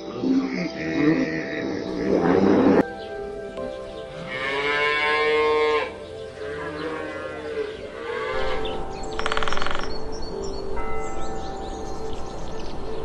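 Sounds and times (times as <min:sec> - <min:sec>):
cattle mooing: 0:00.4 - 0:02.8, 0:04.2 - 0:08.6.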